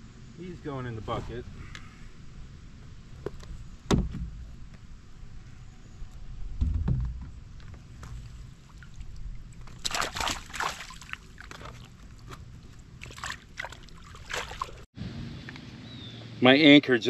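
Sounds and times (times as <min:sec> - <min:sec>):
dull low thump: 0:03.2 - 0:04.8, 0:06.5 - 0:08.2
water splashing and dripping: 0:07.6 - 0:14.9.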